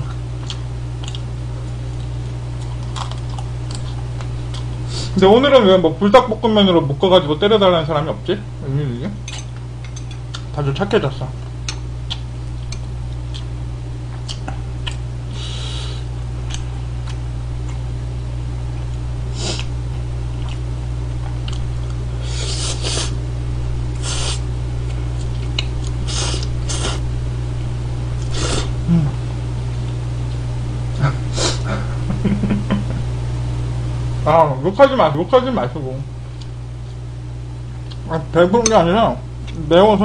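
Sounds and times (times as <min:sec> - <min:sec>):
person chewing: 0:00.0 - 0:04.8, 0:09.6 - 0:10.6, 0:11.6 - 0:15.1, 0:16.4 - 0:17.8, 0:19.4 - 0:23.2, 0:23.9 - 0:27.0, 0:37.7 - 0:38.1, 0:39.4 - 0:39.6
low electrical hum: 0:00.0 - 0:40.0
person sniffing: 0:15.3 - 0:16.1, 0:19.3 - 0:19.7, 0:22.2 - 0:23.2, 0:24.0 - 0:24.4, 0:26.1 - 0:27.0, 0:28.3 - 0:29.1, 0:31.3 - 0:31.9
person slurping noodles: 0:26.1 - 0:27.0, 0:28.3 - 0:29.1.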